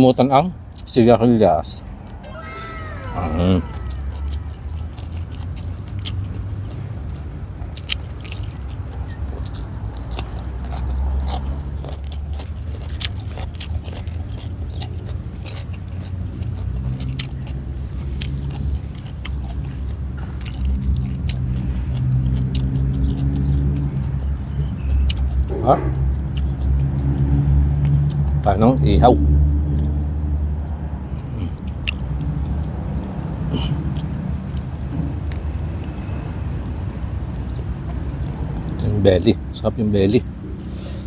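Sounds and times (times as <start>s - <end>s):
person chewing crunchy food: 2.9s - 25.5s.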